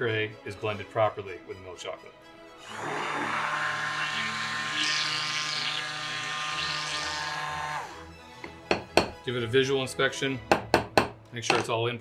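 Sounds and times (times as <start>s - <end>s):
immersion blender running: 2.6s - 8.1s.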